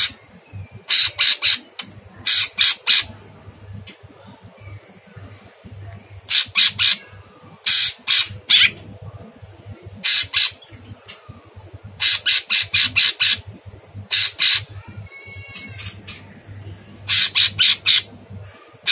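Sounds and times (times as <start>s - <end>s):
bird giving harsh rasping calls: 0.9s - 3.1s, 6.3s - 7.0s, 7.6s - 8.8s, 10.0s - 10.7s, 12.0s - 16.2s, 17.1s - 18.1s.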